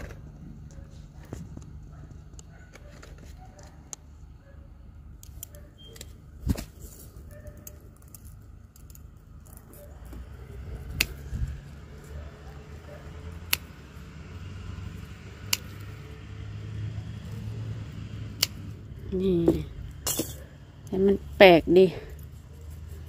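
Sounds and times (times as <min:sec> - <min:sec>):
low steady rumble: 0:00.0 - 0:23.0
scissors clicking and snipping: 0:05.2 - 0:06.1, 0:10.8 - 0:11.3, 0:13.2 - 0:14.0, 0:15.0 - 0:16.0, 0:18.2 - 0:18.8.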